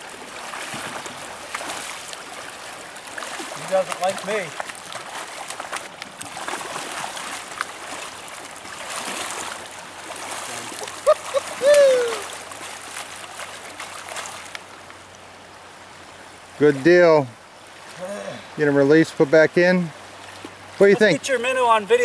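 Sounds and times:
fish splashing at the surface: 0.0 - 14.6
rushing stream water: 0.0 - 22.0.

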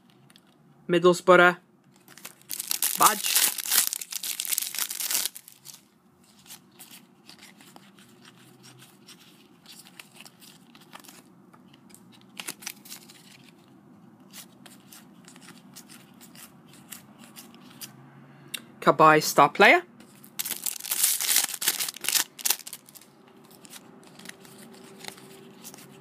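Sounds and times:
trading cards shuffled by hand: 2.0 - 17.9, 20.0 - 26.0.

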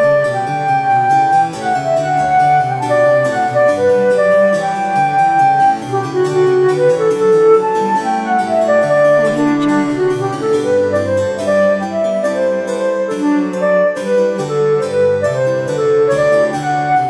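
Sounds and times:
flute melody: 0.0 - 17.0
piano accompaniment: 0.0 - 17.0.

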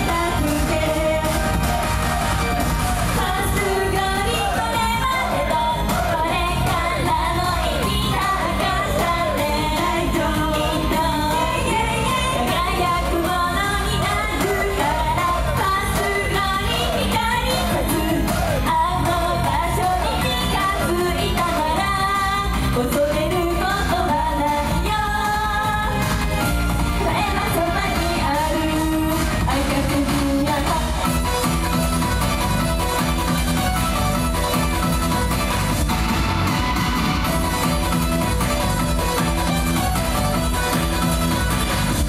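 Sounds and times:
women singing: 0.0 - 1.9, 3.2 - 26.0, 27.0 - 31.2
pop backing music: 0.0 - 42.0.

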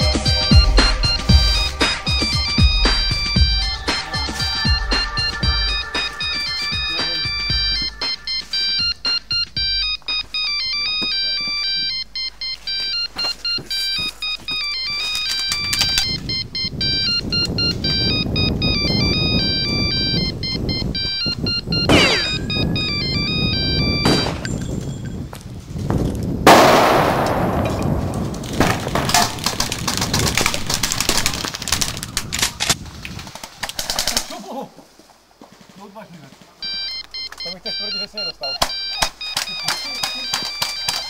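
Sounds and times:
electronic beeping melody: 0.0 - 24.6, 36.6 - 41.0
loud blast: 26.4 - 29.4
airsoft gunfire cracks: 26.5 - 29.8.

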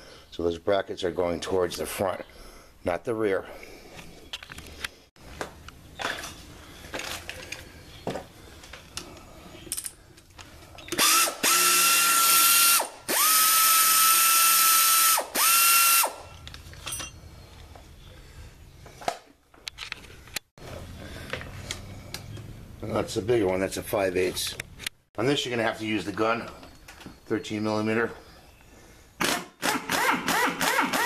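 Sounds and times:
air ratchet whining: 10.9 - 16.2.

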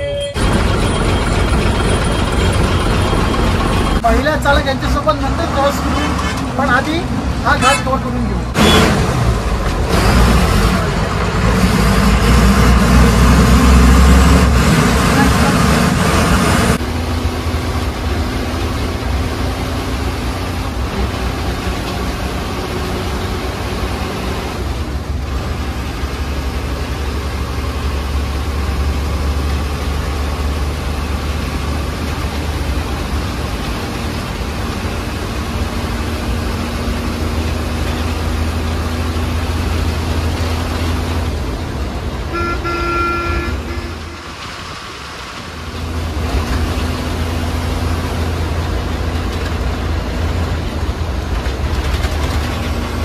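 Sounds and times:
bus engine drone: 0.0 - 53.0
road noise: 0.0 - 53.0
vehicle horn: 7.5 - 9.0, 42.3 - 44.4.

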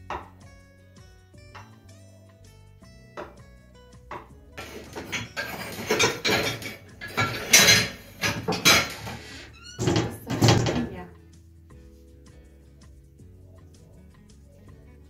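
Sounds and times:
rustling and knocking in cabinet: 4.1 - 11.1.

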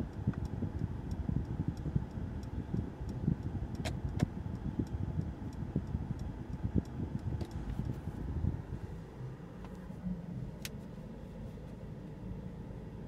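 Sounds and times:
light regular ticking: 0.0 - 9.9
car rumble: 0.0 - 13.0
sharp clicks: 0.1 - 7.9.

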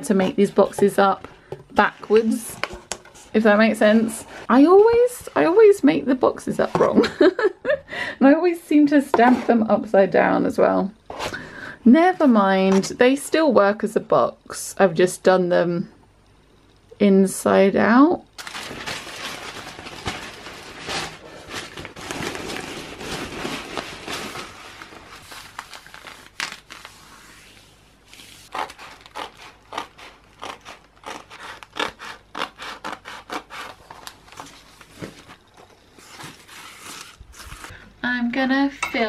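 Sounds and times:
paper rustling: 18.4 - 29.2.

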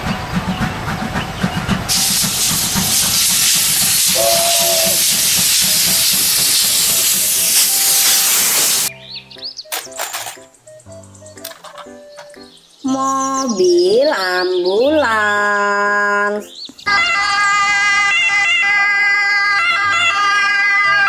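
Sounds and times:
steam hissing: 0.0 - 8.9
steam locomotive chuffing: 0.0 - 8.9
train whistle blast: 1.9 - 8.9, 16.9 - 21.0
quiet music: 8.9 - 17.0.

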